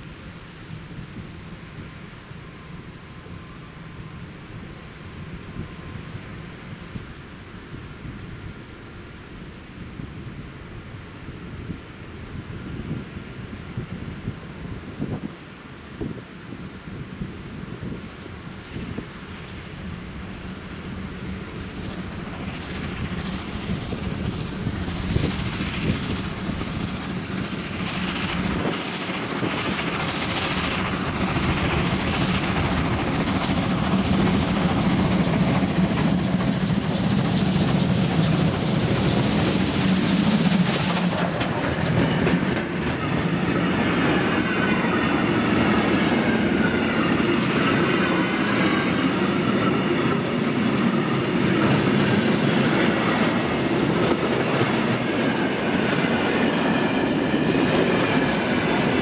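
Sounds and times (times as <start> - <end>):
steam hiss: 11.4 - 59.0
steam locomotive exhaust beats: 16.6 - 59.0
train wheels clattering on rails: 18.7 - 59.0.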